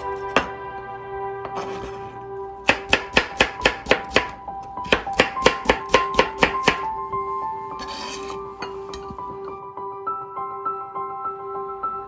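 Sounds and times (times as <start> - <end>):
knife chopping on plastic board: 2.7 - 6.9.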